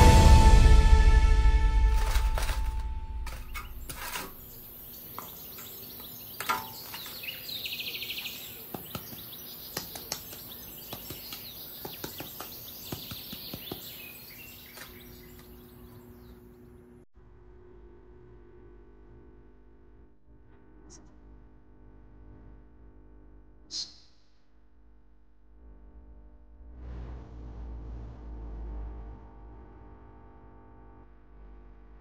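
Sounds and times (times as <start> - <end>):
background music: 0.0 - 3.6
bird chirping trill: 3.2 - 16.8
flowerpots clicking and tapping: 8.4 - 14.0.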